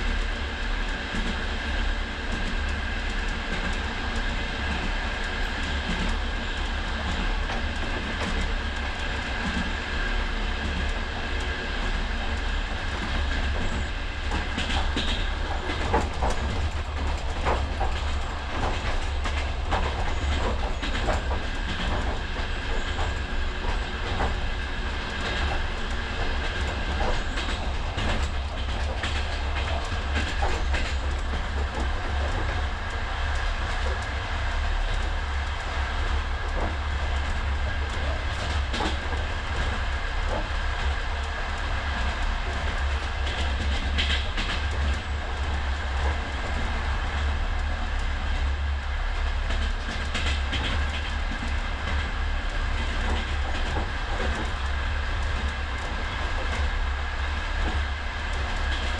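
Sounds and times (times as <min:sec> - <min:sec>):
train rumble: 0:00.0 - 0:58.9
sharp clicks and knocks: 0:42.0 - 0:46.7, 0:49.2 - 0:52.1.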